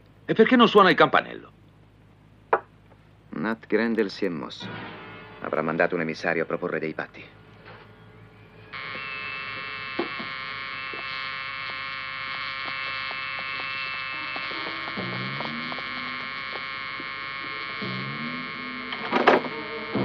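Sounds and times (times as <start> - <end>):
doorbell buzzer: 8.7 - 20.0.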